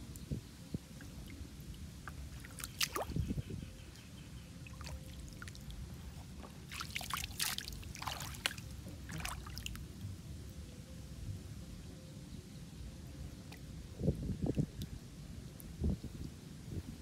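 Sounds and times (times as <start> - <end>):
foot splashing in muddy water: 2.4 - 3.2, 6.7 - 9.7.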